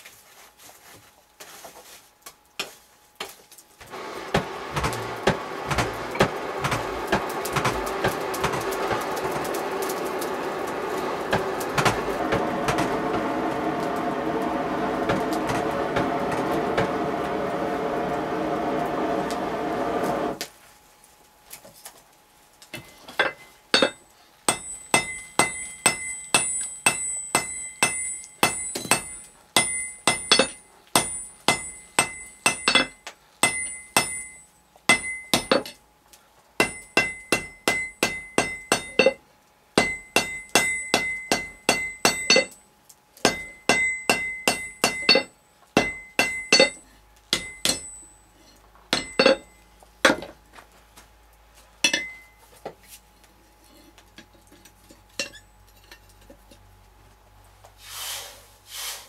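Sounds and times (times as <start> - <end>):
hammer striking iron on anvil: 23.2 - 35.8, 36.6 - 39.2, 39.8 - 42.6, 43.2 - 48.2, 48.9 - 50.2, 51.8 - 52.4.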